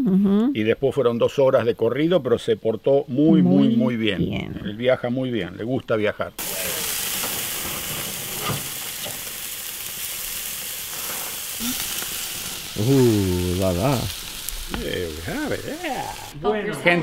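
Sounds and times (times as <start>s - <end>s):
meat sizzling on a grill: 6.4s - 16.4s.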